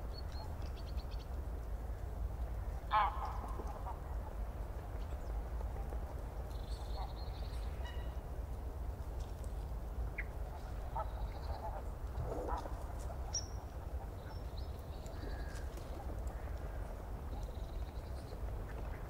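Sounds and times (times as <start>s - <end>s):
faint bird calls: 10.2s - 19.0s.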